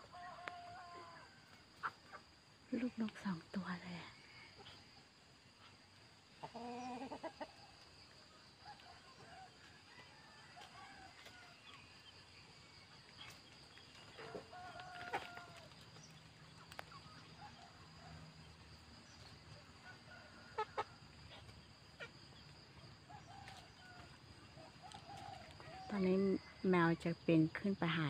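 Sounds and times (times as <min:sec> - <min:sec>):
chickens clucking: 0:01.7 - 0:02.4, 0:05.6 - 0:07.9, 0:13.1 - 0:17.8, 0:18.8 - 0:25.6.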